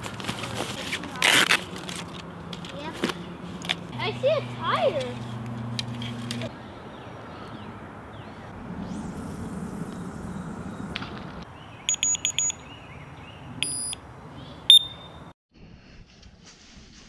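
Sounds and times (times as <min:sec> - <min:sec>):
electronic bite alarms beeping: 0:11.9 - 0:12.7, 0:13.6 - 0:14.0, 0:14.7 - 0:15.2.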